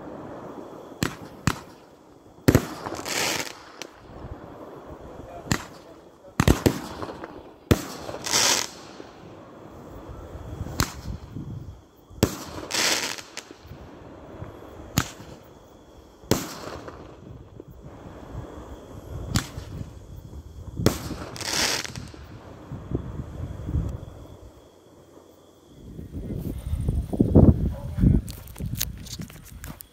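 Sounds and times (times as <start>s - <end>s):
fireworks bangs: 0.0s - 29.1s.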